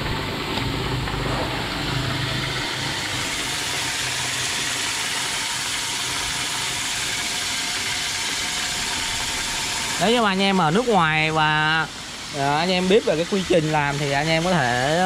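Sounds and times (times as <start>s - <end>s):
polishing machine motor hum: 0.0s - 15.0s.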